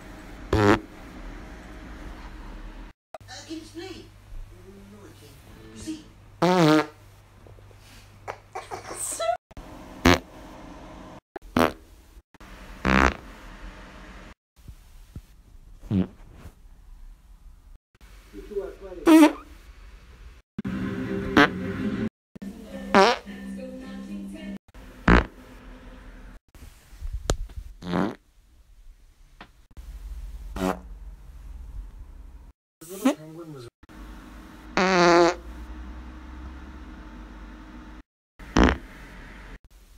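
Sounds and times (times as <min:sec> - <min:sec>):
person farting: 0:00.5 - 0:00.9, 0:06.4 - 0:07.0, 0:10.0 - 0:10.3, 0:11.5 - 0:11.8, 0:12.8 - 0:13.2, 0:15.8 - 0:16.2, 0:19.1 - 0:19.4, 0:22.9 - 0:23.2, 0:25.0 - 0:25.4, 0:27.8 - 0:28.2, 0:30.6 - 0:30.8, 0:34.8 - 0:35.4, 0:38.5 - 0:38.9.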